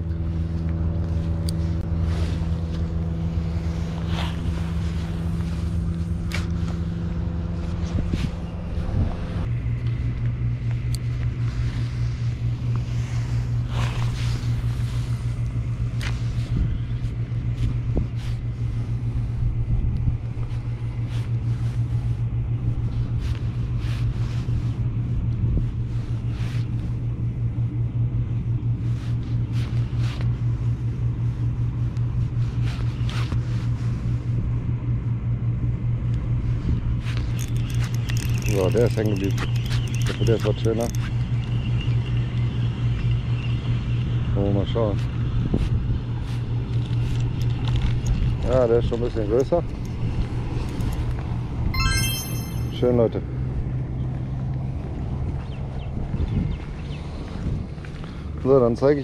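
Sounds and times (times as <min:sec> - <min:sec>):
engine droning: 0:00.0 - 0:27.6, 0:36.7 - 0:41.8.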